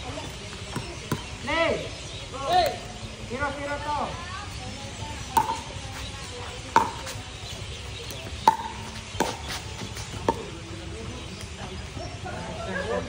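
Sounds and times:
paddles striking plastic ball: 5.4s - 5.7s.

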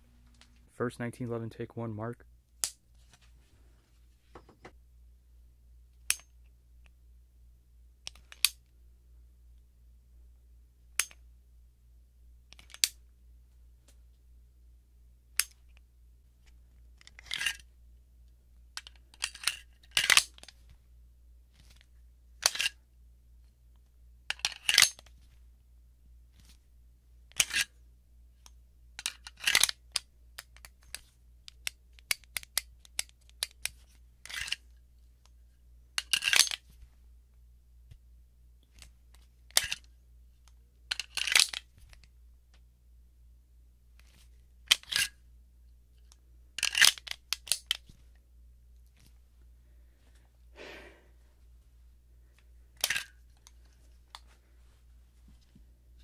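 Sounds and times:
pistol metallic clicks: 11.0s - 11.2s
magazine clacking and rattling: 18.8s - 20.7s, 24.3s - 25.2s, 29.0s - 34.7s, 36.0s - 36.8s, 40.9s - 42.1s, 46.6s - 48.1s, 52.8s - 54.4s.

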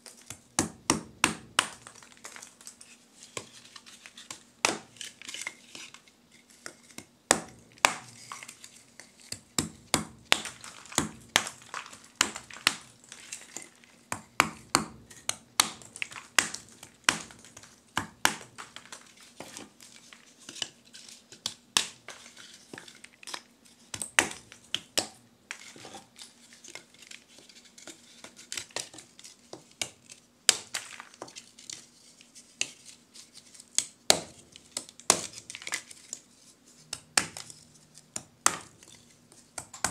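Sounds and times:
charcoal crunching: 1.5s - 2.9s, 7.5s - 20.2s.

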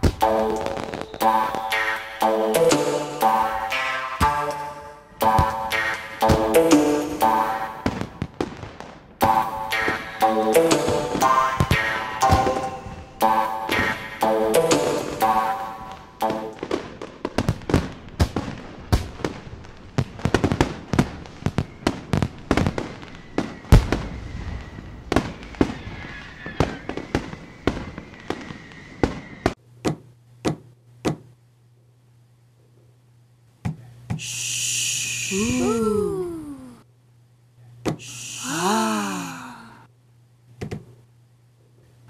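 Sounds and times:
fireworks bangs and crackles: 0.0s - 2.0s, 5.2s - 29.6s
thin steady whistle: 21.6s - 29.6s, 34.2s - 35.7s
hiss: 34.1s - 35.5s, 38.0s - 38.7s.

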